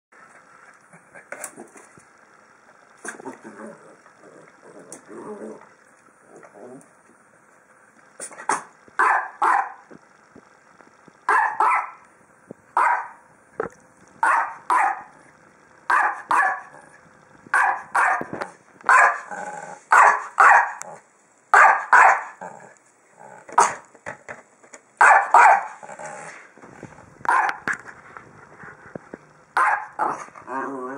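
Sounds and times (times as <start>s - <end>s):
small dog barking: 8.5s - 9.8s, 11.3s - 12.0s, 12.8s - 13.2s, 14.2s - 15.1s, 15.9s - 16.8s, 17.5s - 18.3s, 18.9s - 19.3s, 19.9s - 20.8s, 21.5s - 22.4s, 25.0s - 25.8s, 27.3s - 27.6s, 29.6s - 30.2s.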